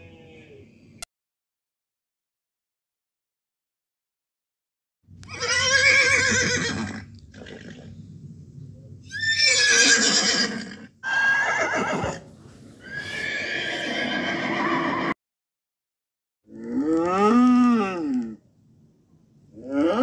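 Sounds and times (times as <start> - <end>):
horse whinnying: 5.2 - 7.9, 9.0 - 15.2.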